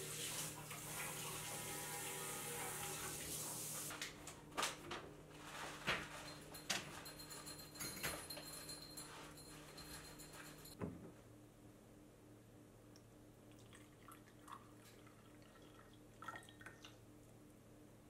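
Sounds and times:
dishes clinking and knocking: 5.9s - 11.0s.

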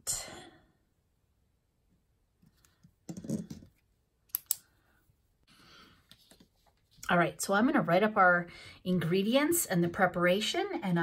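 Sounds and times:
pens being handled: 2.4s - 4.6s, 6.0s - 7.0s.

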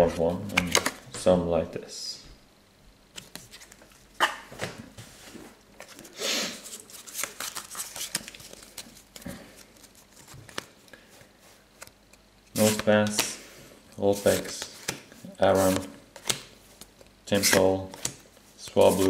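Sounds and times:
cards rustling: 0.4s - 1.1s, 3.1s - 4.3s, 5.8s - 19.0s
cards sliding and flicking: 3.1s - 4.7s, 6.9s - 10.8s, 12.6s - 13.4s, 14.2s - 18.2s.

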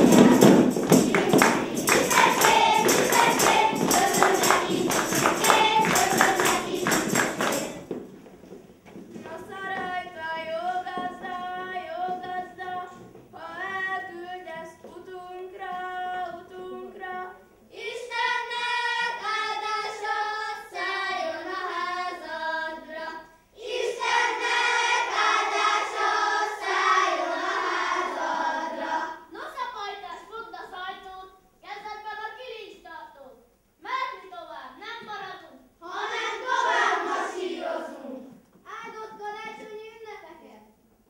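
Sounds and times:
children's choir singing: 0.0s - 8.0s, 9.3s - 29.3s, 35.8s - 38.4s.

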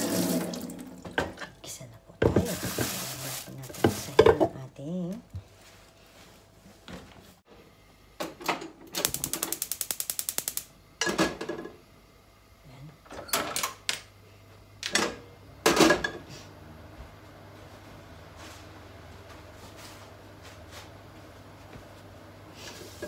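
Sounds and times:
gas burner igniter clicking: 9.0s - 10.7s.

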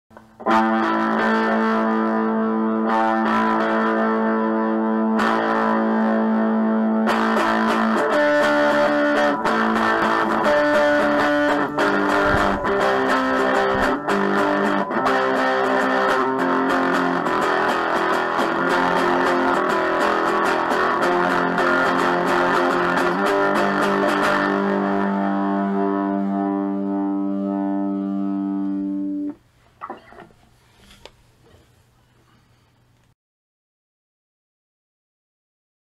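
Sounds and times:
distorted electric guitar music: 0.2s - 30.4s.

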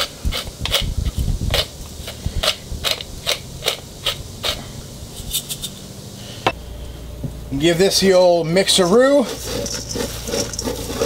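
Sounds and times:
pepper mill grinding: 0.0s - 4.6s, 8.8s - 11.0s.

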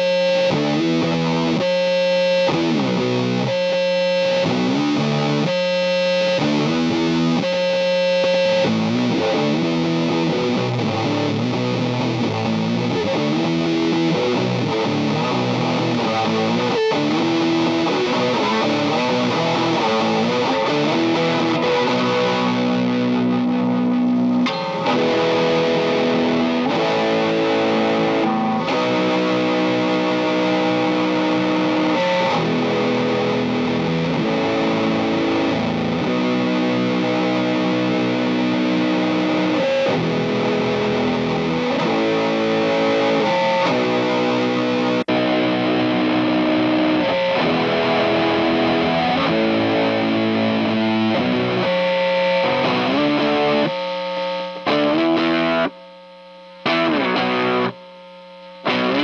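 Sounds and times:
distorted electric guitar: 0.0s - 59.0s.

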